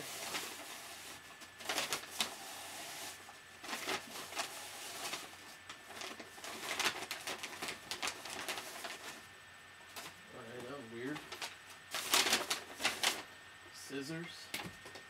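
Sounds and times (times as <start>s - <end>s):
paper bag rustling: 0.0s - 9.2s, 11.0s - 13.3s.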